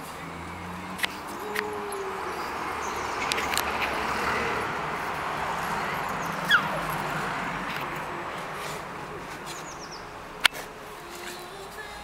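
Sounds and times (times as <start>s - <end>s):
dog yelping: 6.2s - 7.0s.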